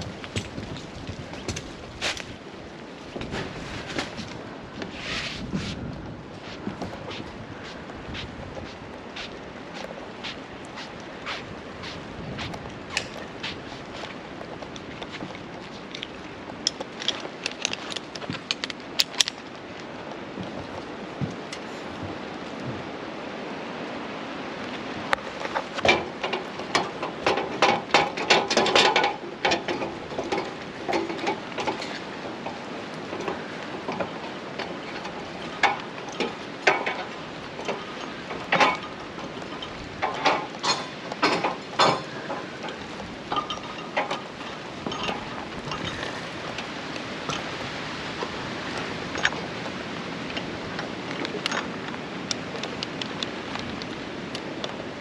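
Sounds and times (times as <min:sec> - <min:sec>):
metal climbing gear clinking: 0:12.2 - 0:19.6, 0:25.2 - 0:54.8
clanks on metal ladder rungs: 0:25.3 - 0:51.8.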